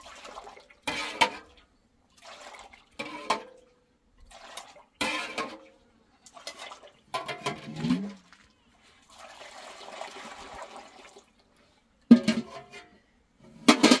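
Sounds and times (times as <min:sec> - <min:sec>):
metal bowls and pots clinking: 0:06.3 - 0:08.4, 0:12.1 - 0:13.0
milk pouring into metal pot: 0:09.1 - 0:11.4.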